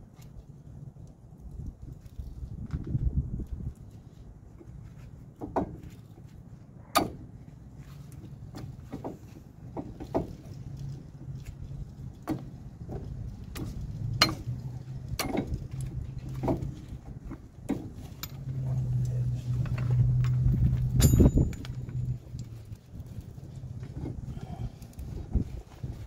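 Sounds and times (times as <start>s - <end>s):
low steady hum: 0.0s - 26.0s
metal clicks and knocks: 12.1s - 22.6s.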